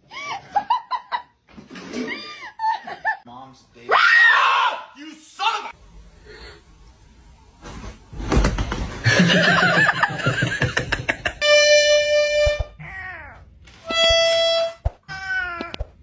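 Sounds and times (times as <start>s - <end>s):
harmonica-like comic notes: 11.3s - 12.8s, 13.8s - 14.8s.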